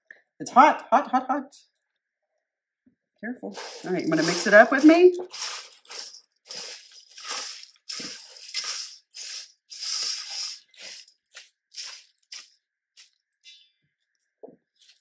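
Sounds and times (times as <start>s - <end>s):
snack mix crackling and rustling: 3.5s - 13.5s, 14.8s - 15.0s.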